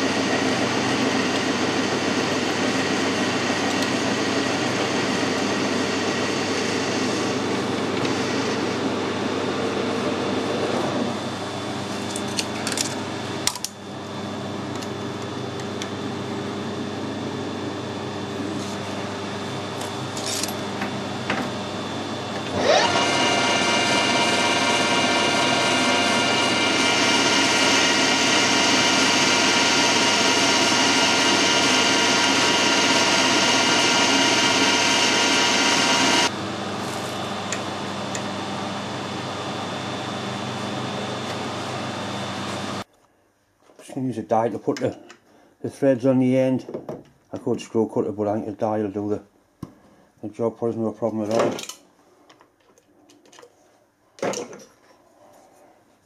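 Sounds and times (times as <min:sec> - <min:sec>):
metal lathe gear whine: 0:00.0 - 0:16.6, 0:18.1 - 0:42.8
steady shop hum: 0:00.0 - 0:56.0.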